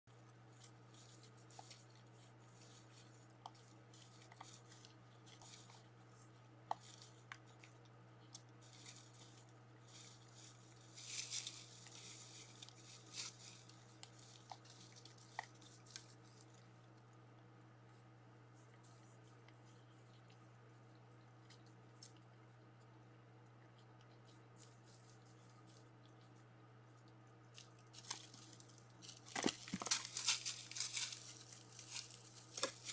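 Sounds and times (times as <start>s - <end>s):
steady low hum: 0.1s - 32.9s
deer crunching dry leaves: 0.2s - 6.0s, 8.3s - 16.6s, 27.5s - 32.9s.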